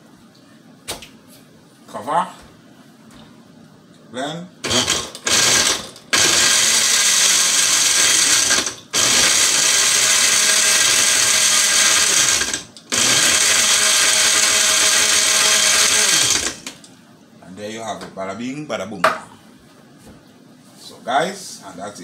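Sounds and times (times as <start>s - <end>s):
blender crushing ice: 4.6s - 16.8s.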